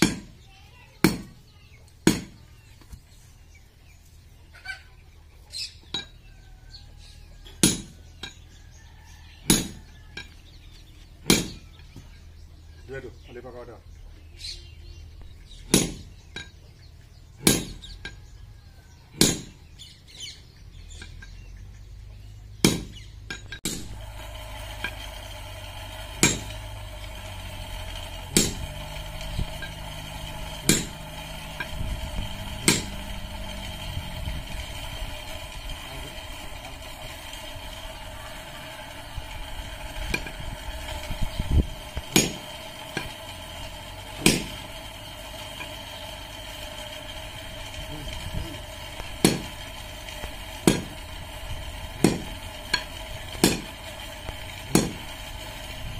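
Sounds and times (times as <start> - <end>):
hammer striking anvil: 0.0 - 0.3, 49.2 - 49.5, 52.0 - 53.7, 54.7 - 55.0
steady mechanical hum: 0.0 - 55.9.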